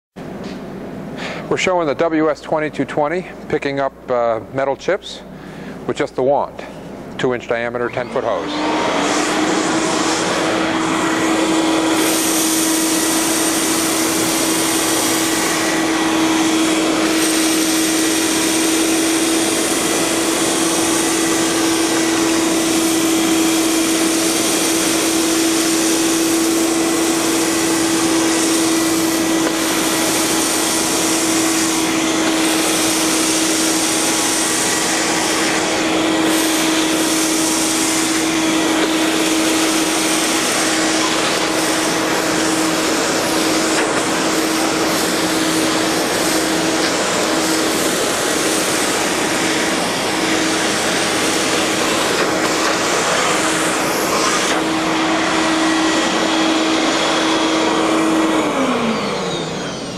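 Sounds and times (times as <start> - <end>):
industrial vacuum motor hum: 0.2 - 59.9
air hissing through hose: 9.2 - 57.2.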